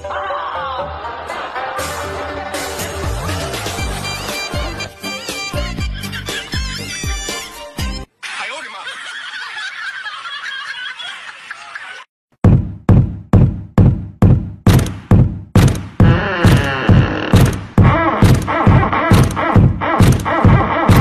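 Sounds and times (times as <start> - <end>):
rhythmic sharp knocks with thumps: 12.4 - 21.0.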